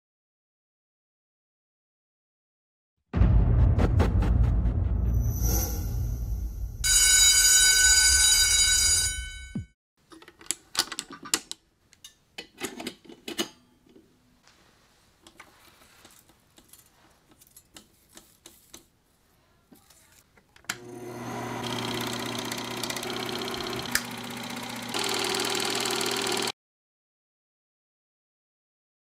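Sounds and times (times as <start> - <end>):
projector motor whirring: 20.8 - 26.5.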